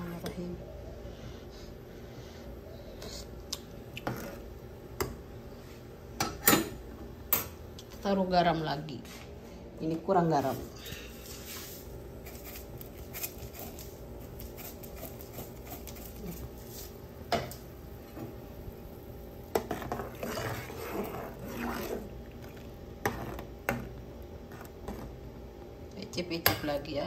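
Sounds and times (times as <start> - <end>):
ladle stirring simmering broth: 17.6 - 25.7.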